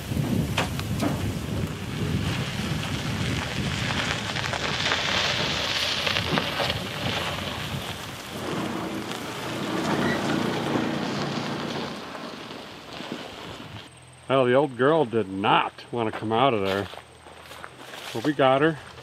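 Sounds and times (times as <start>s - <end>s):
weeds crackling against a vehicle: 0.0s - 19.0s
engine running: 8.2s - 13.9s.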